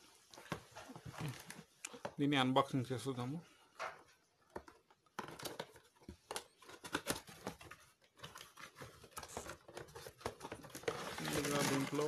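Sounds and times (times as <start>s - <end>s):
cardboard box being opened: 6.8s - 12.0s.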